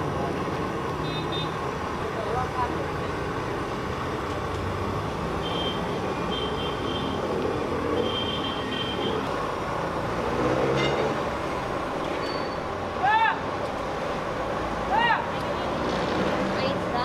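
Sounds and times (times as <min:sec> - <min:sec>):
city traffic noise: 0:00.0 - 0:17.0
brief high squeals: 0:12.2 - 0:12.7.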